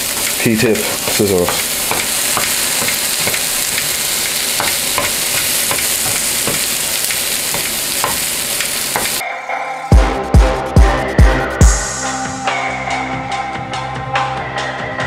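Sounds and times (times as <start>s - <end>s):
peppers sizzling in a frying pan: 0.0s - 9.2s.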